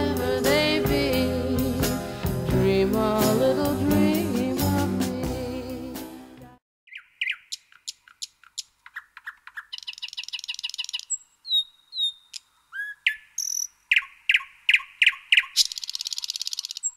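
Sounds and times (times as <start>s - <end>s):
songbirds singing: 6.9s - 16.9s.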